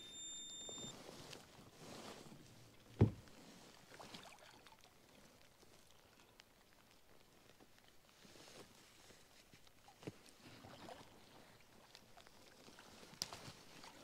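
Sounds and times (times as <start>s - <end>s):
handling sounds in kayak: 0.2s - 4.1s.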